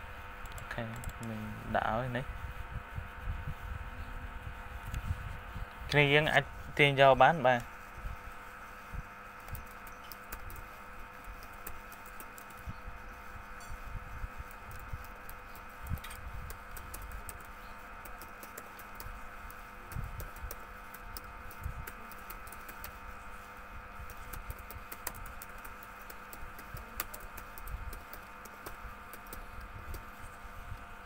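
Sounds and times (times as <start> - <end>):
keyboard typing clicks: 0.4 - 1.4, 9.4 - 12.7, 14.4 - 23.0, 24.0 - 30.1.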